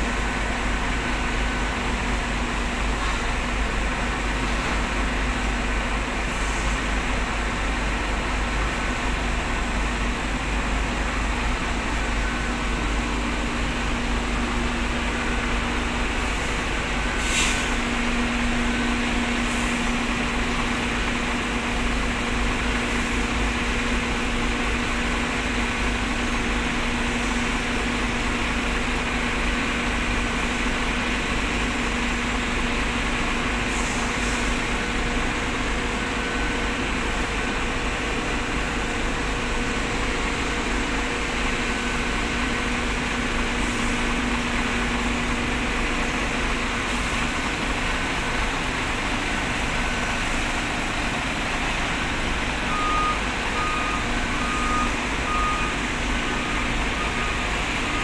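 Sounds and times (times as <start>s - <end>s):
dump truck engines droning: 0.0s - 58.0s
reversing alarm beeping: 11.1s - 17.2s, 52.5s - 58.0s
lower-pitched beep: 52.7s - 55.8s.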